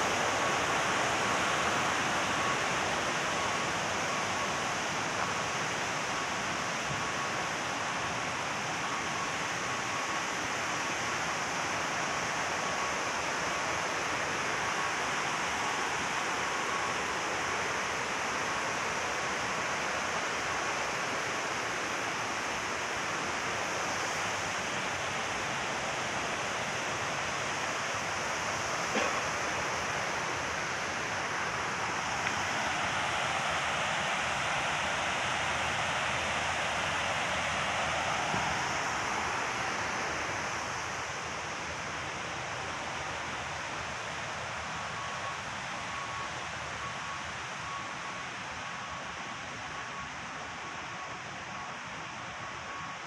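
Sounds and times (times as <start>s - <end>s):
river rushing over dam: 0.0s - 53.0s.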